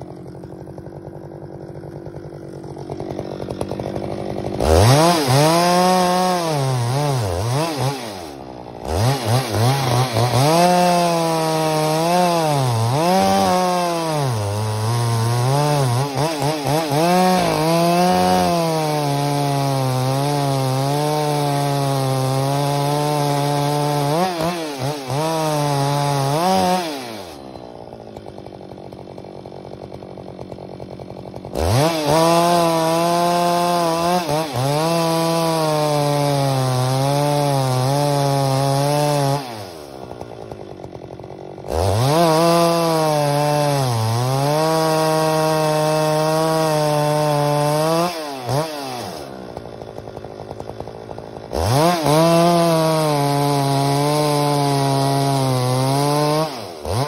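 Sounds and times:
chainsaw cutting wood: 0:00.0 - 0:57.0.

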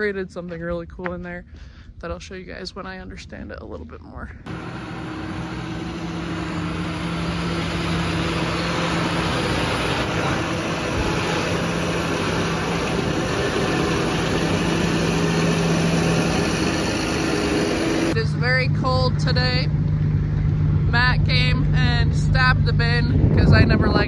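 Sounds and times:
tractor diesel engine running: 0:04.4 - 0:24.0.

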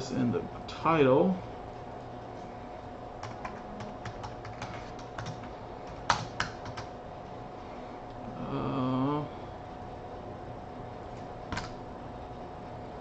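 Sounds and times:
faint hum: 0:00.0 - 0:13.0
computer keyboard typing: 0:03.2 - 0:06.9.

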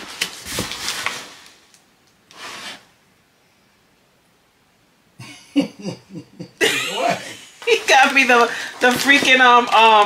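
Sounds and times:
cardboard scraping and rustling: 0:00.0 - 0:01.6, 0:02.3 - 0:02.9, 0:07.7 - 0:10.0.

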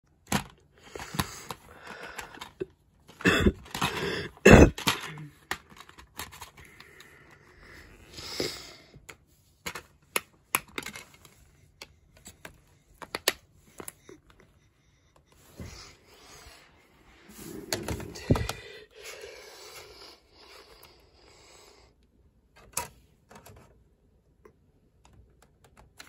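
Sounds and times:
plastic case rustling: 0:17.3 - 0:18.7.

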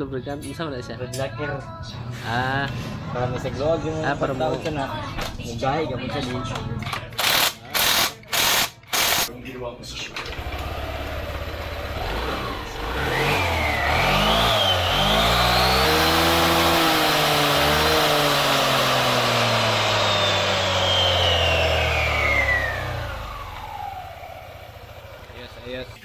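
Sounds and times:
scooter engine revving: 0:10.1 - 0:26.0.

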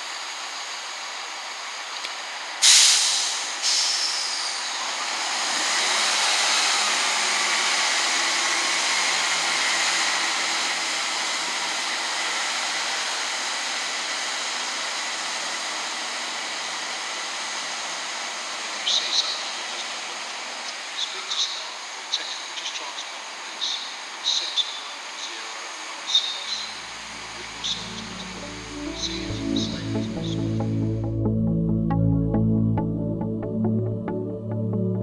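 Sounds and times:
faint engine whine: 0:00.0 - 0:35.0
train diesel engines running up: 0:00.0 - 0:35.0
sharp hiss of air: 0:02.6 - 0:10.6.

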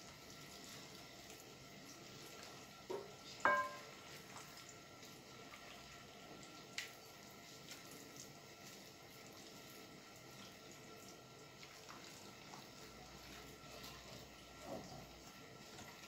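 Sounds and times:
knocks against glass bowl: 0:02.9 - 0:03.8.

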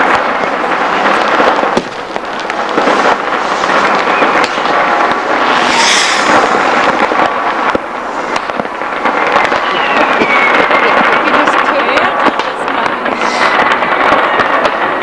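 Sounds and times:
fireworks crackling and banging: 0:00.0 - 0:15.0
brief hiss: 0:05.5 - 0:06.6.

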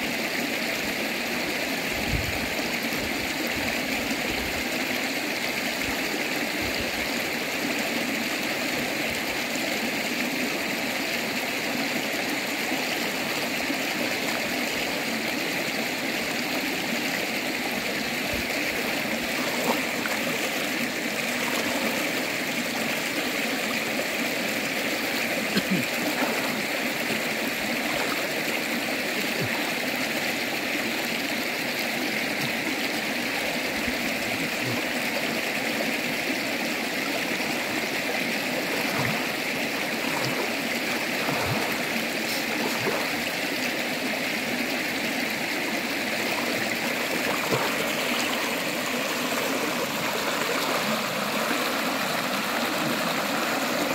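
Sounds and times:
river flowing over stones: 0:00.0 - 0:53.9
water splashes from wading: 0:17.7 - 0:24.0, 0:24.6 - 0:30.1, 0:36.8 - 0:44.0, 0:46.1 - 0:53.9.

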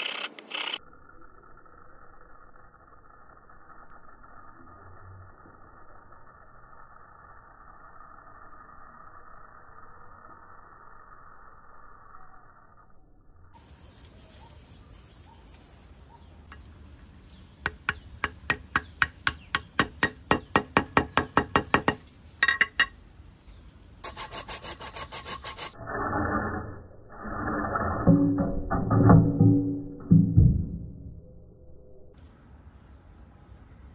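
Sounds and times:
hand file rasping: 0:24.0 - 0:25.8.

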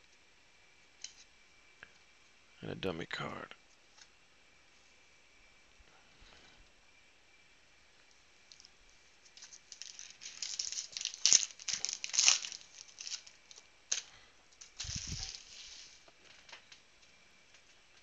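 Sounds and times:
foil crinkling: 0:08.5 - 0:16.6
foil pack ripping: 0:09.3 - 0:16.4.

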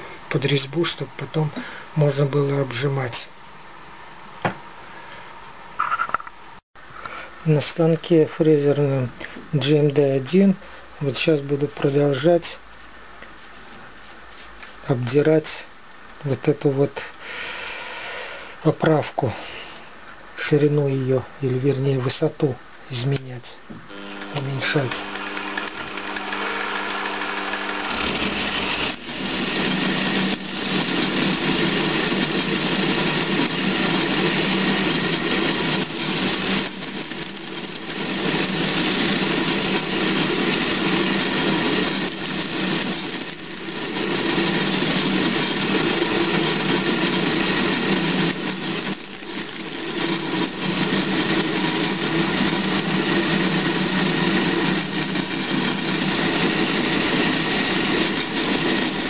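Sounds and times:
end mill rasping metal: 0:23.9 - 0:30.2
milling machine motor hum: 0:23.9 - 0:59.0.

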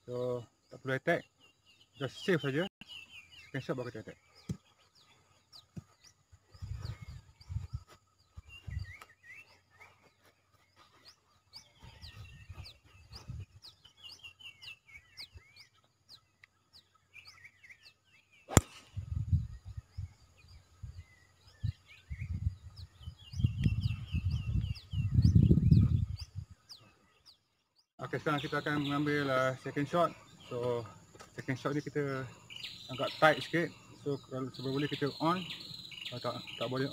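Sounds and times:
small birds chirping: 0:00.0 - 0:36.9
wind rumble on microphone: 0:06.4 - 0:09.0, 0:11.8 - 0:13.8, 0:18.8 - 0:26.6
golf club striking ball: 0:18.5 - 0:18.8.

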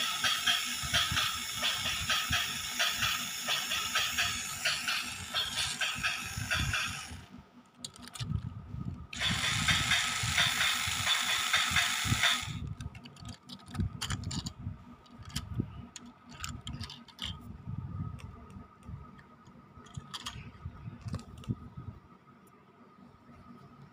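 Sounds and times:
model locomotive gears whirring: 0:00.0 - 0:08.4, 0:09.1 - 0:17.4, 0:19.8 - 0:20.5.

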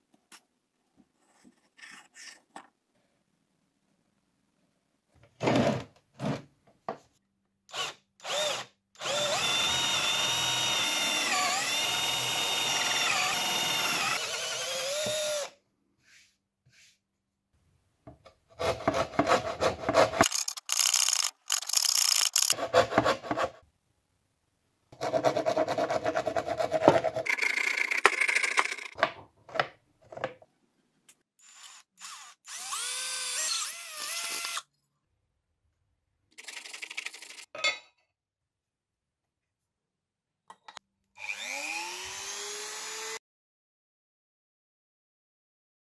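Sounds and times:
cordless drill running: 0:07.7 - 0:15.5, 0:20.2 - 0:22.6, 0:31.5 - 0:34.6, 0:41.2 - 0:43.2.

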